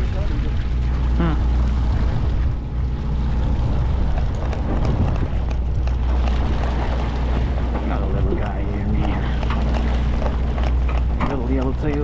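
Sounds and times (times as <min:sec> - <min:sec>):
boat engine droning: 0:00.0 - 0:12.0
wind noise: 0:01.5 - 0:11.8.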